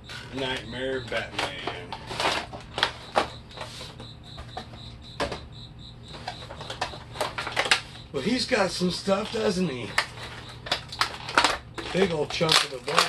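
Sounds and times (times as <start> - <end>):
faint high chirping: 2.8 - 10.7
plastic packaging crackling: 9.1 - 13.0.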